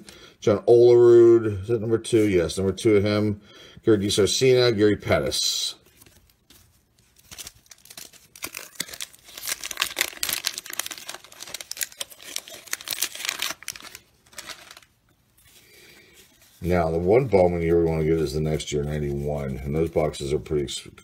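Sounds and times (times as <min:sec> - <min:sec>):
wrapper tearing and crinkling: 0:06.1 - 0:18.3.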